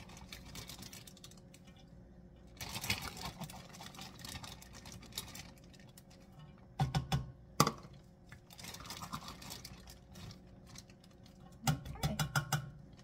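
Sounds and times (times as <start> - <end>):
plastic bag crinkling: 0.0 - 6.3, 8.3 - 11.6.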